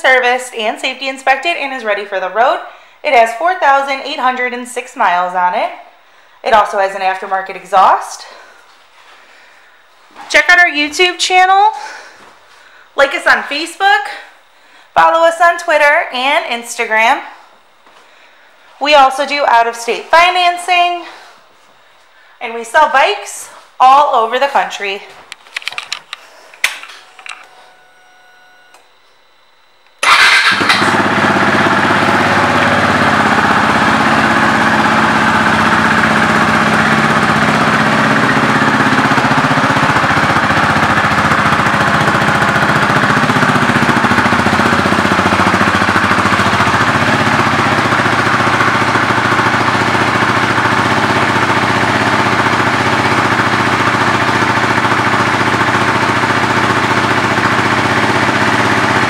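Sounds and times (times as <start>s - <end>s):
motorcycle engine starting and idling: 30.0s - 59.0s.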